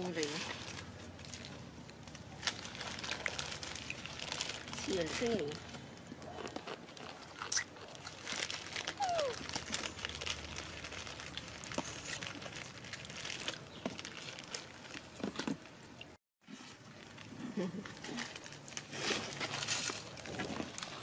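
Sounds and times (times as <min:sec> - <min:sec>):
plastic snack packet crinkling: 0:00.6 - 0:15.7.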